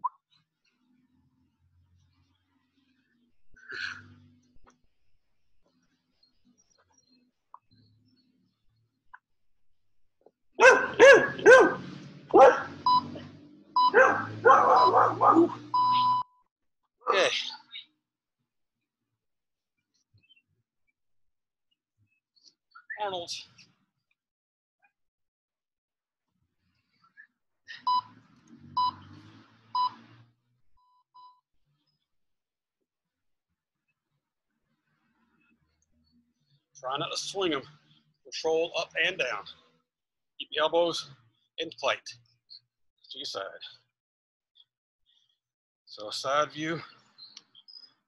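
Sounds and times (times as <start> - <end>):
dog barking: 10.6 - 13.2, 13.8 - 15.8
short electronic beeps: 12.8 - 15.1, 15.7 - 16.4, 28.8 - 29.1.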